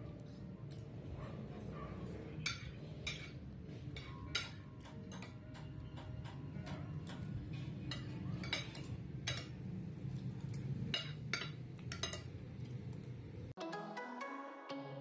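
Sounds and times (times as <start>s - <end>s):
spoons clinking on plates: 2.4s - 13.0s.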